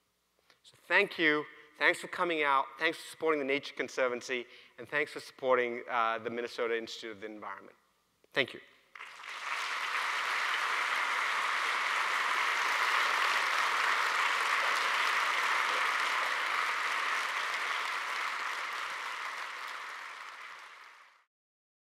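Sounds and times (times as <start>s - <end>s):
audience applauding: 8.9s - 21.3s.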